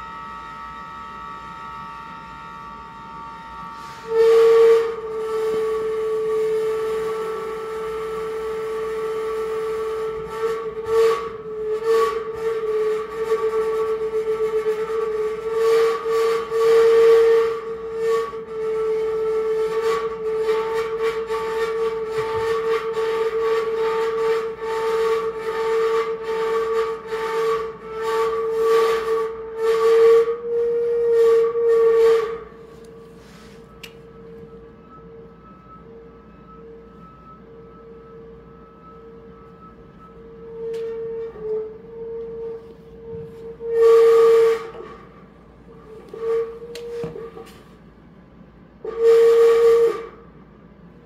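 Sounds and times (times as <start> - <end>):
held whistle-like electronic tone: 0.0 - 8.8, 29.8 - 44.8.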